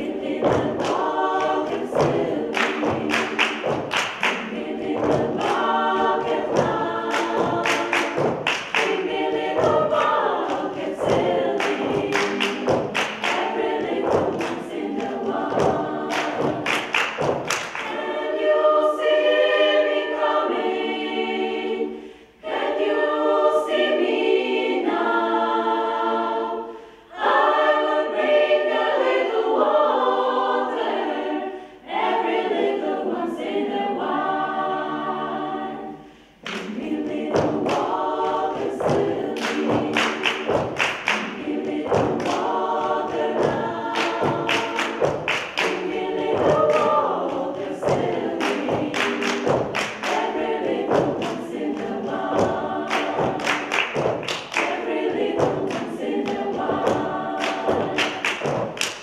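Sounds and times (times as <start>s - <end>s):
rhythmic hand clapping: 0.0s - 21.4s, 36.3s - 59.0s
women's choir singing: 0.0s - 59.0s.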